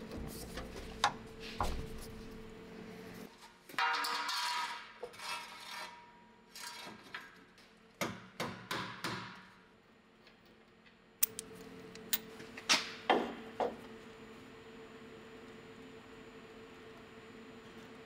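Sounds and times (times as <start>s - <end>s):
tools clicking and knocking: 11.2s - 12.3s.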